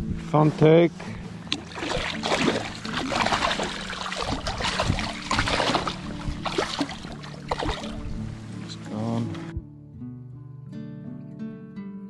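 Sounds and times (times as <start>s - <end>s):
water splashing and trickling: 1.0s - 9.5s.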